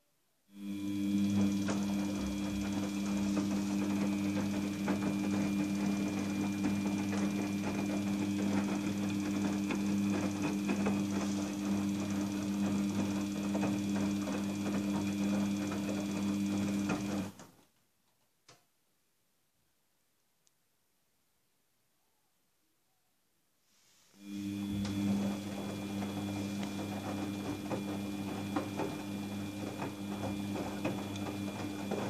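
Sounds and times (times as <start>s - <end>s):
washing machine motor hum: 0.5s - 17.4s, 24.2s - 32.0s.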